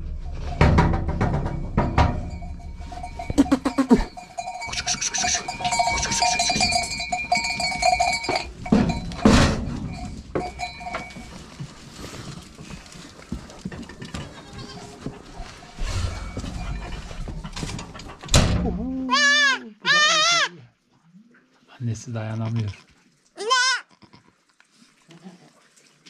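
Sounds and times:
goats bleating: 0:19.1 - 0:20.6.

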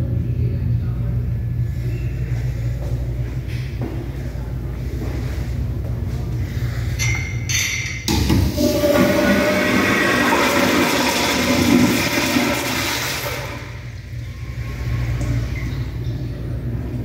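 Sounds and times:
toilet flushing: 0:08.3 - 0:16.4
water running: 0:08.6 - 0:16.7.

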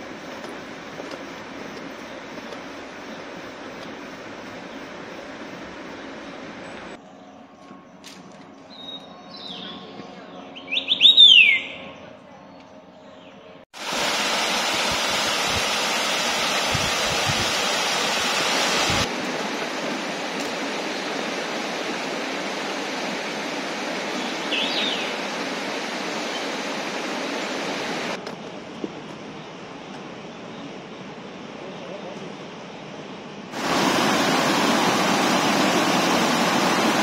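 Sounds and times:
forest birds calling: 0:05.9 - 0:13.6, 0:24.1 - 0:25.4
stream water rushing over weir: 0:13.8 - 0:28.2, 0:33.6 - 0:37.0.

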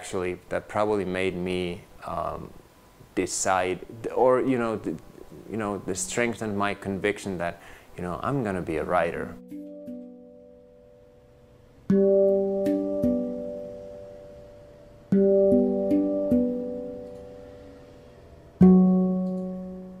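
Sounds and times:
plucked guitar music: 0:09.3 - 0:11.2, 0:11.9 - 0:14.5, 0:15.1 - 0:17.4, 0:18.6 - 0:20.0.

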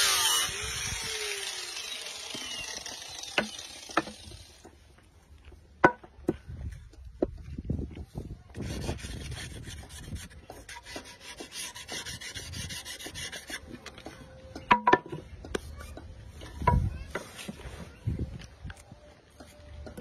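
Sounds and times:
sharp wooden knocks: 0:03.3 - 0:04.4
sandpaper rubbing on wood: 0:08.6 - 0:13.8.

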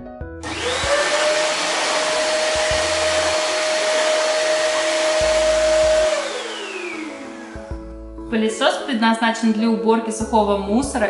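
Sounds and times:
vacuum cleaner motor whine: 0:00.4 - 0:08.0.

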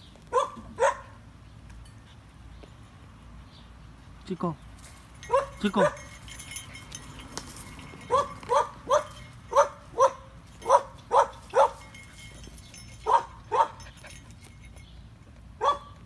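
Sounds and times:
dog barking: 0:00.3 - 0:01.2, 0:08.1 - 0:11.8, 0:13.0 - 0:13.8, 0:15.6 - 0:16.0.

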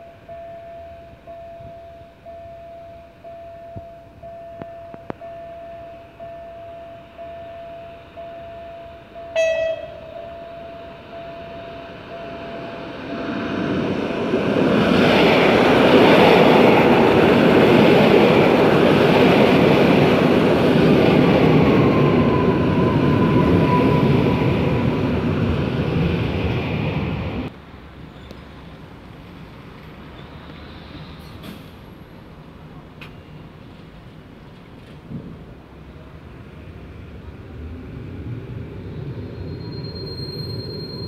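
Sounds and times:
train wheel and running noise: 0:00.0 - 0:41.0
train horn toot: 0:09.3 - 0:12.4.

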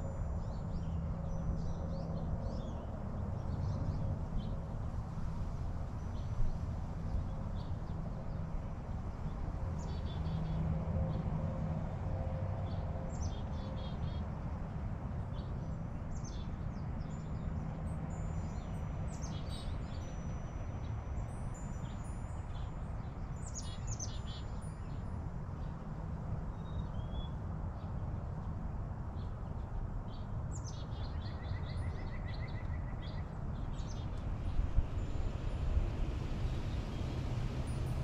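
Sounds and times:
songbirds chirping: 0:15.2 - 0:28.5, 0:29.1 - 0:38.0
steady low rumble: 0:33.6 - 0:38.0.

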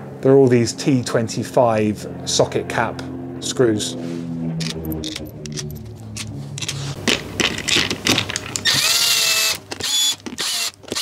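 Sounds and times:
screws clicking into cap: 0:07.6 - 0:11.0
cordless drill whining: 0:08.5 - 0:11.0.

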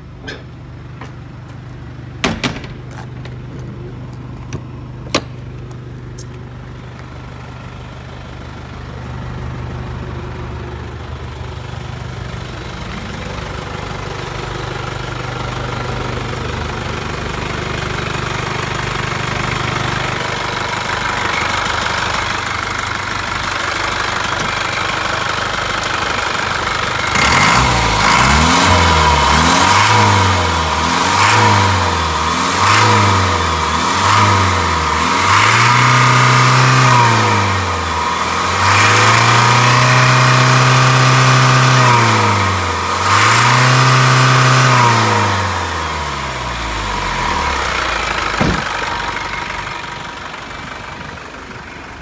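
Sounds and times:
truck engine idling and revving: 0:00.0 - 0:52.0.

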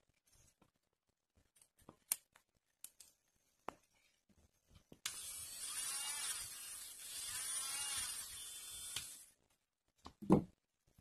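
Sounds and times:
nail drill motor whine: 0:05.1 - 0:09.3.

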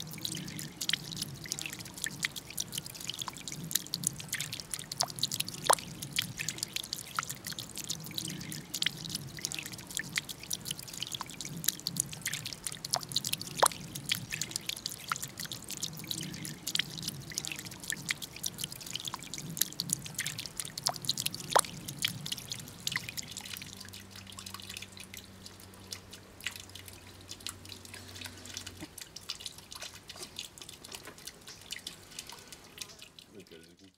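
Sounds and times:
water dripping into pond: 0:00.0 - 0:33.9.

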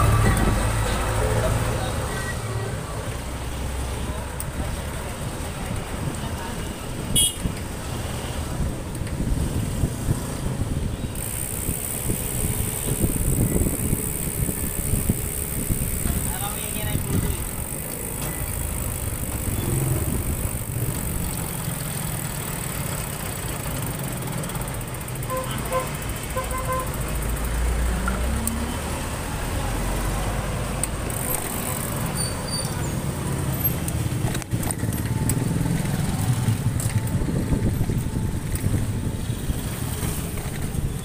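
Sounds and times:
truck engine deep rumble: 0:00.0 - 0:07.1, 0:11.7 - 0:25.3, 0:31.7 - 0:41.0
street traffic rumble: 0:00.0 - 0:41.0.

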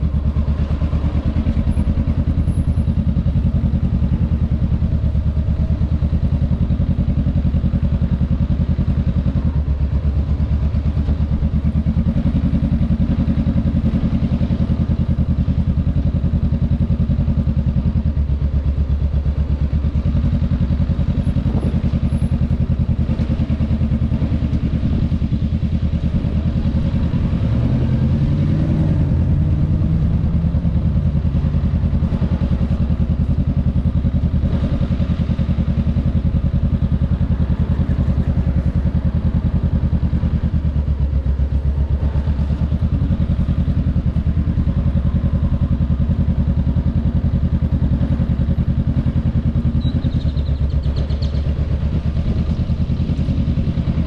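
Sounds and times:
motorcycle engine running at low revs: 0:00.0 - 0:54.0.

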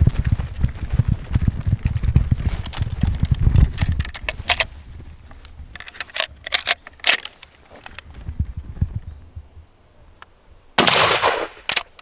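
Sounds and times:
rustling handling noise: 0:02.5 - 0:08.4
rifle metallic clicks: 0:05.7 - 0:08.0, 0:10.8 - 0:12.0.

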